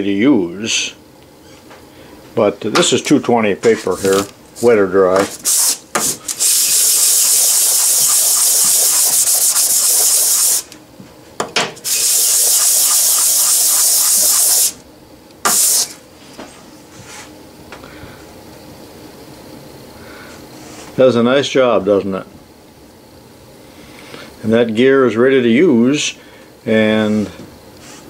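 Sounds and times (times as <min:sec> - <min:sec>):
metal rubbing on sandpaper: 0:06.6 - 0:10.6, 0:11.9 - 0:14.7.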